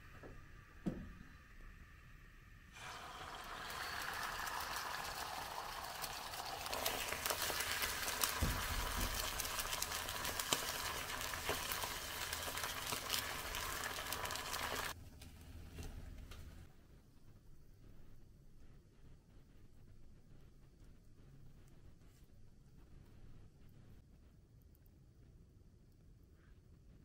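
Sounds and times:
egg sizzling in frying pan: 0:00.1 - 0:15.0.

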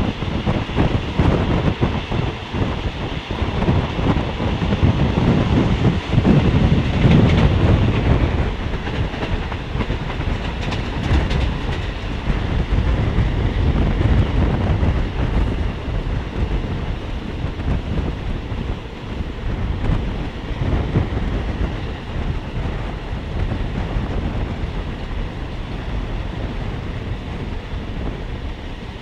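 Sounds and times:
train wheels rumbling: 0:00.0 - 0:29.0
wheels clacking over rail joints: 0:06.0 - 0:12.7.

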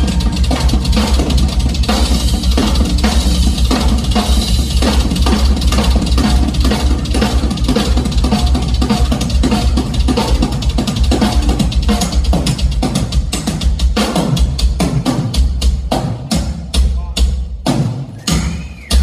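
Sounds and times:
heavy bass drum boom: 0:00.0 - 0:14.8
rock drum kit playing: 0:00.0 - 0:19.0.

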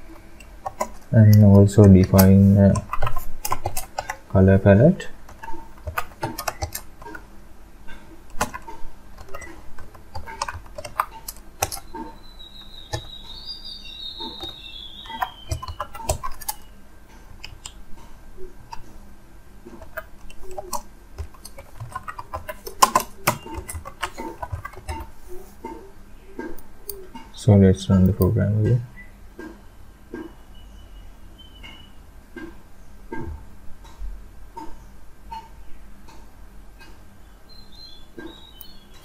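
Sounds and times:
keyboard key clicks: 0:05.3 - 0:07.2, 0:08.3 - 0:12.1, 0:14.2 - 0:16.6, 0:19.8 - 0:25.1.

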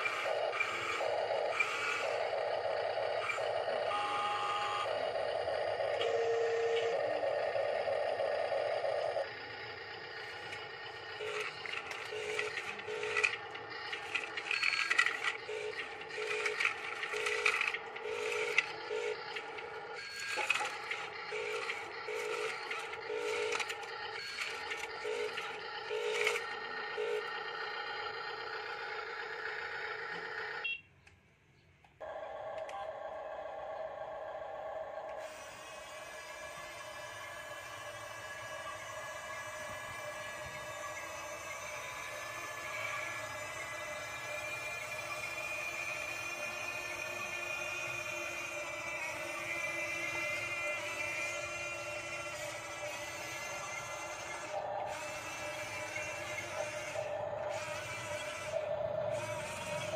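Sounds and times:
small electric motors whining: 0:00.0 - 0:30.7, 0:32.0 - 0:59.9.

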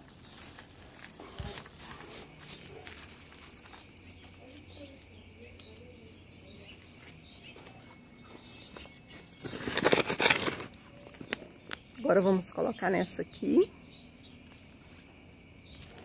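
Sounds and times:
fingers rustling in soil: 0:00.0 - 0:05.9, 0:06.6 - 0:11.4
faint bird chirp: 0:01.2 - 0:16.0.

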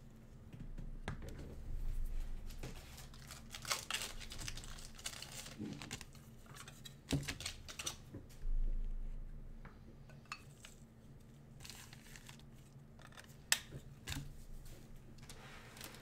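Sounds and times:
wrapper tearing and crinkling: 0:02.9 - 0:06.2, 0:11.6 - 0:12.4.

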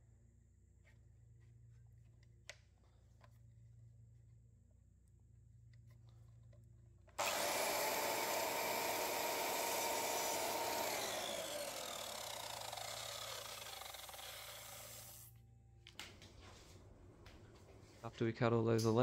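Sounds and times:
mitre saw cutting timber: 0:07.2 - 0:15.3
saw blade spinning down whine: 0:07.2 - 0:15.3.

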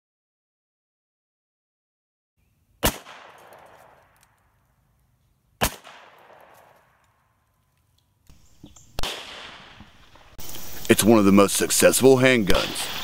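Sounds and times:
revolver shots with echo: 0:05.6 - 0:06.6, 0:09.0 - 0:09.8.

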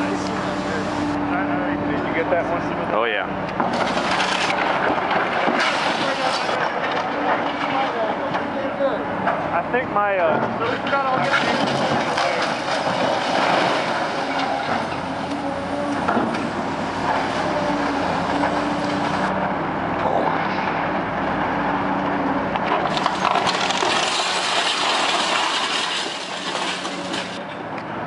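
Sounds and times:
excavator diesel engines and hydraulics: 0:00.0 - 0:28.0
brick debris crashing down: 0:03.7 - 0:07.9, 0:11.0 - 0:15.0, 0:22.7 - 0:27.4.

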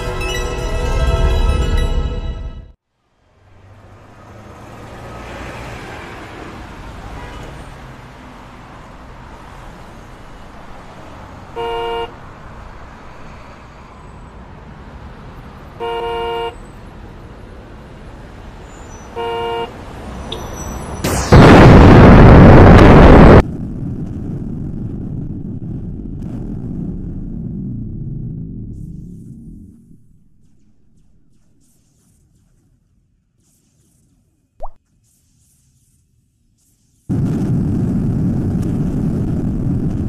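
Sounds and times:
city traffic hum: 0:02.7 - 0:40.0
car horn honking: 0:11.5 - 0:12.2, 0:15.8 - 0:16.6, 0:18.9 - 0:20.6.

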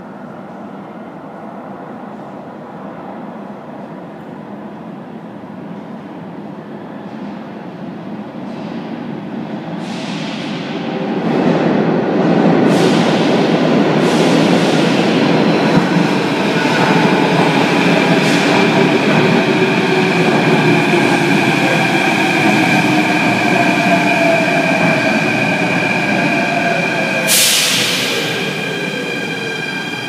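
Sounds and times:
train wheels rumbling on rail: 0:07.0 - 0:30.0.

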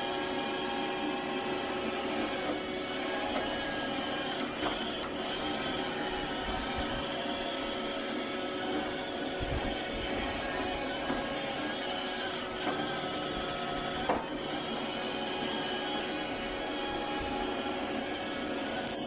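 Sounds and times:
robot vacuum motor whine: 0:00.0 - 0:19.0.

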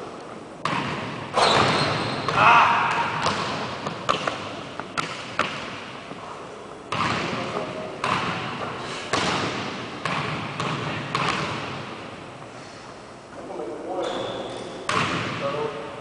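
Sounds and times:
basketball bouncing on hardwood floor: 0:03.2 - 0:05.6, 0:06.9 - 0:07.4, 0:09.1 - 0:11.7, 0:14.9 - 0:15.3.

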